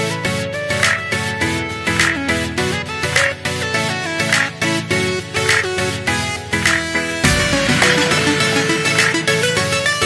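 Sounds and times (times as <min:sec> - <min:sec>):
melody over bass line with beat: 0:02.1 - 0:10.0.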